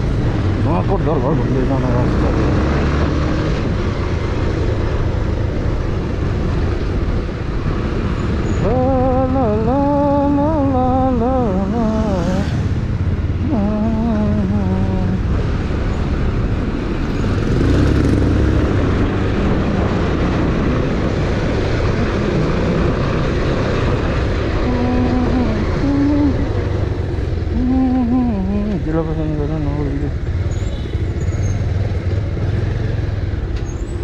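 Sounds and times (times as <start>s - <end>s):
wind and road noise: 0.0s - 34.0s
person speaking: 0.6s - 2.6s, 24.6s - 26.7s, 27.5s - 30.2s
motorcycle engine running: 8.6s - 15.4s.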